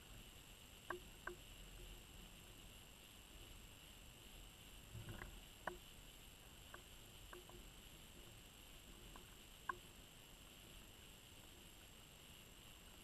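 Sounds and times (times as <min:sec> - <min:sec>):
faint underwater hiss: 0:00.0 - 0:13.0
small sharp clicks: 0:00.8 - 0:01.4, 0:05.0 - 0:05.9, 0:06.6 - 0:07.7, 0:09.1 - 0:09.9.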